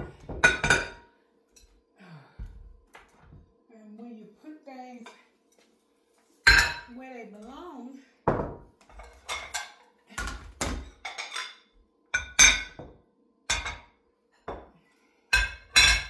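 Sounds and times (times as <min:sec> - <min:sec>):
dishes and utensils clinking: 0:00.0 - 0:01.8, 0:06.4 - 0:07.0, 0:08.3 - 0:14.7, 0:15.3 - 0:16.0.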